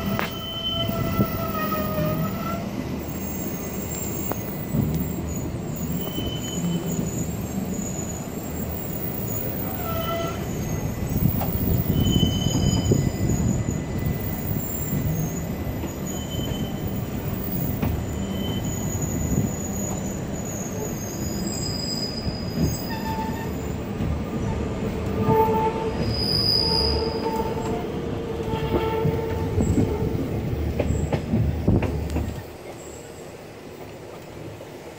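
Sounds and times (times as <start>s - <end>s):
high-pitched wheel squeal: 0.0s - 23.7s, 25.2s - 27.8s
train wheels rumbling on rail: 0.0s - 34.9s.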